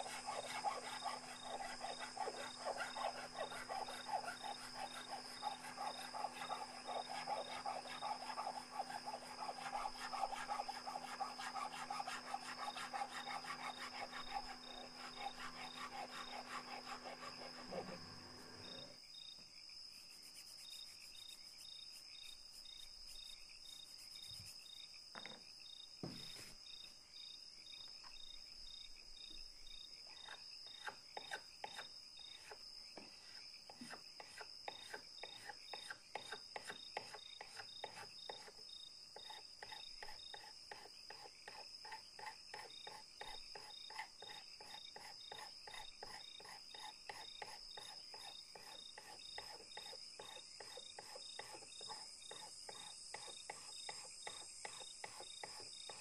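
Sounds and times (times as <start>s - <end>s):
file scraping wood: 0.0s - 19.0s, 30.2s - 32.6s, 33.3s - 38.6s, 39.2s - 56.0s
crickets chirping: 0.0s - 56.0s.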